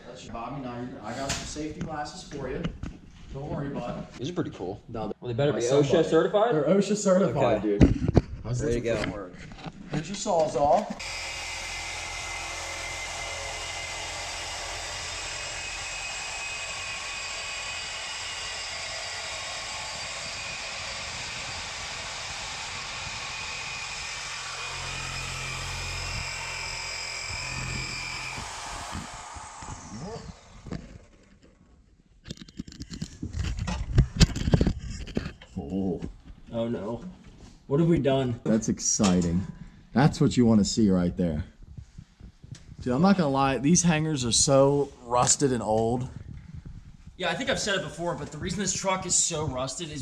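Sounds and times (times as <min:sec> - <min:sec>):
reciprocating saw cutting pipe: 0:11.0 - 0:31.4.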